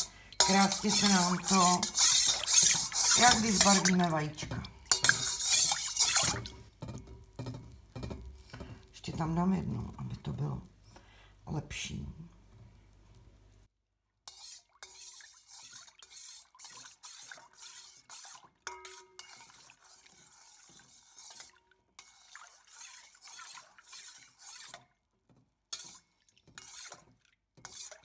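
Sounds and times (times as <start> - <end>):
spoon clinking against metal bowl: 0.0 - 4.1, 4.9 - 8.6, 18.7 - 19.1
metal spoon scraping and swishing: 0.0 - 6.7, 14.3 - 24.8, 25.7 - 28.0.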